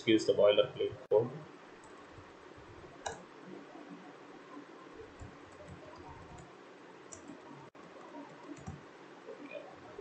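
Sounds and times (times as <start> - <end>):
keyboard typing: 5.1 - 6.5, 7.1 - 8.8.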